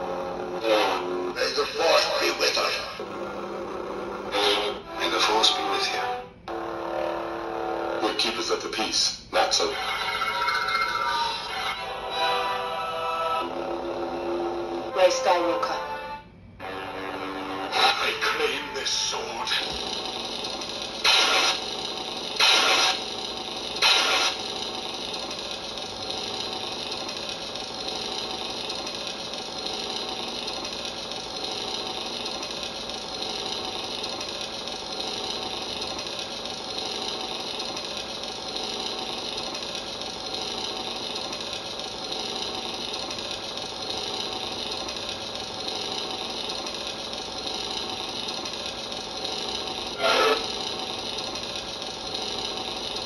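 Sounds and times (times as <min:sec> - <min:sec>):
electronic idle hum: 0:00.0 - 0:08.9, 0:09.7 - 0:53.0.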